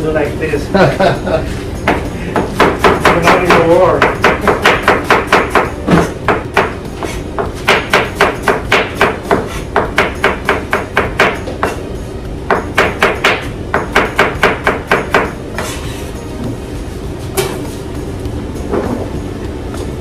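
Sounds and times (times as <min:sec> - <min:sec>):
knife chopping on cutting board: 0:01.9 - 0:11.8.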